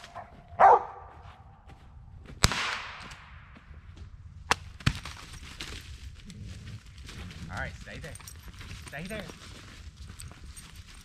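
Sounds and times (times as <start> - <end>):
dog barking: 0.1 - 1.1
sharp crack echoing: 2.4 - 3.7.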